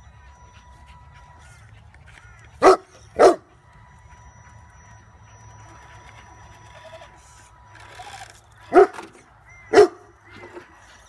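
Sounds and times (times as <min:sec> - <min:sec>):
dog barking: 0:02.6 - 0:03.4, 0:08.7 - 0:09.0, 0:09.7 - 0:10.0.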